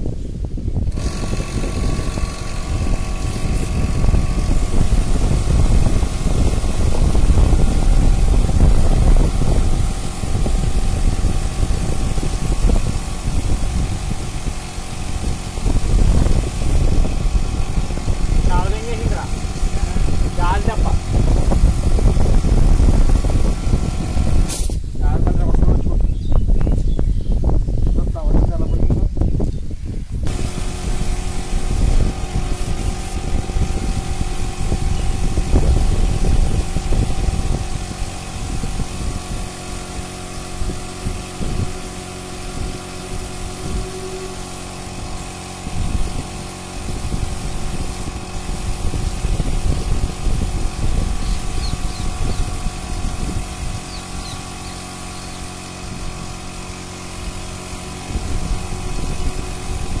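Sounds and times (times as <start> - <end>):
motor humming: 0.0 - 25.8, 28.6 - 60.0
low rumble: 0.0 - 26.0
hiss: 1.0 - 25.0, 30.3 - 60.0.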